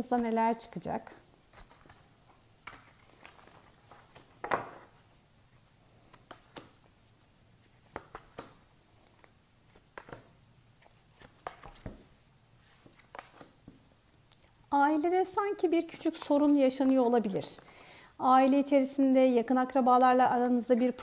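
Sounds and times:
cards shuffling and rustling: 0.1s - 17.8s
cards tapping on wooden table: 4.4s - 4.9s.

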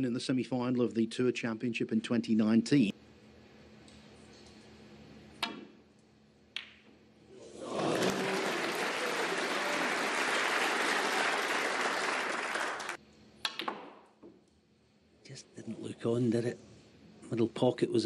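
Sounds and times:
audience applause: 7.4s - 13.0s.

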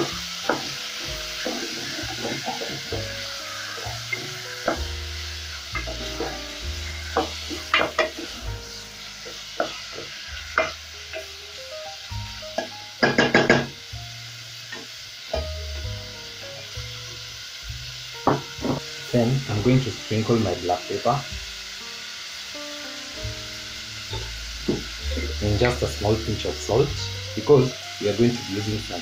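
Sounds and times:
wooden spoon knocking and scraping pan: 0.0s - 8.4s, 9.2s - 11.3s, 12.6s - 13.8s, 18.2s - 18.9s, 24.1s - 26.2s
meat sizzling in hot oil: 0.0s - 29.0s.

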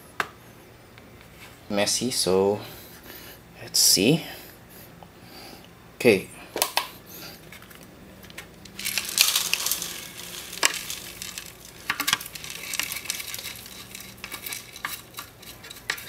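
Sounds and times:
oats pouring into metal bowl: 8.7s - 16.0s.

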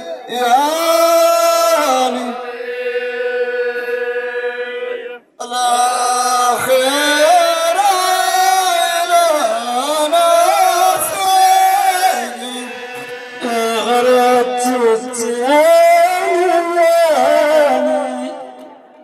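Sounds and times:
group of men chanting: 0.0s - 5.2s, 6.4s - 16.6s
man singing long note: 5.4s - 19.0s.

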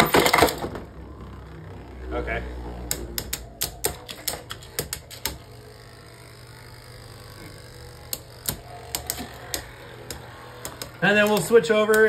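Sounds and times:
plastic spinning tops clicking: 2.8s - 12.0s.

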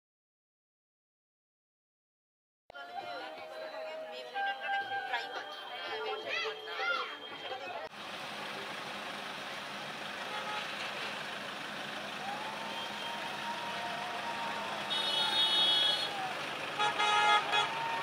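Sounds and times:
road traffic: 2.7s - 18.0s
car horn honking: 10.2s - 11.0s, 14.7s - 18.0s.

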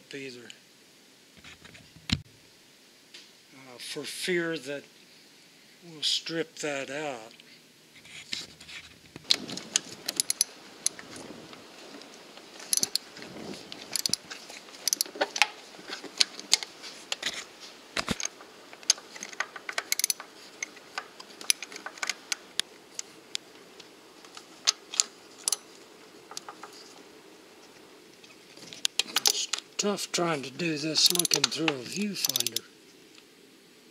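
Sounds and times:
metal tools clinking: 9.7s - 10.5s, 31.0s - 32.6s
ratchet wrench clicking: 10.1s - 10.5s, 12.7s - 13.0s, 14.8s - 15.1s, 19.2s - 20.2s, 31.0s - 31.5s, 32.2s - 32.6s.

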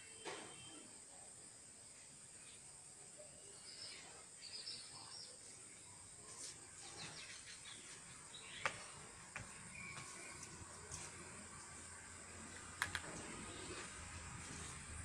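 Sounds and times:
small birds chirping: 2.4s - 11.8s, 12.6s - 14.8s
sharp clicks: 12.7s - 13.2s.

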